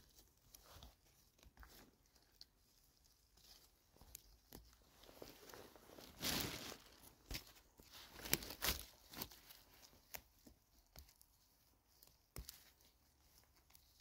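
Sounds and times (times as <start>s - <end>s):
crackling and rustling on forest floor: 0.0s - 14.0s
twigs snapping: 6.2s - 10.2s.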